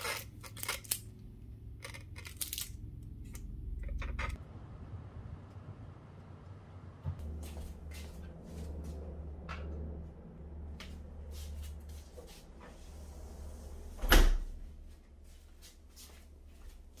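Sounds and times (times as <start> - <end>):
low steady hum: 0.0 - 17.0
door shutting: 13.9 - 14.5.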